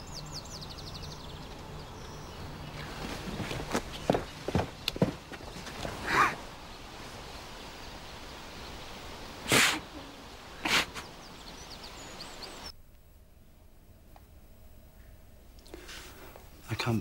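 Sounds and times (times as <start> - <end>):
outdoor background noise: 0.0 - 17.0
loud sharp breaths: 10.6 - 11.1
faint bird chirps: 14.9 - 15.9.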